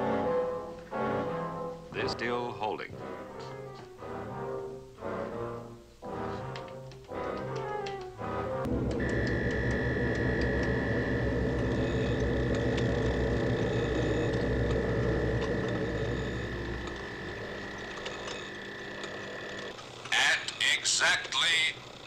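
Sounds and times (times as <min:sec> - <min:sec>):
electronic machine hum: 0:08.6 - 0:20.6
deep rumble: 0:08.7 - 0:17.2
high electronic tone: 0:08.7 - 0:19.3.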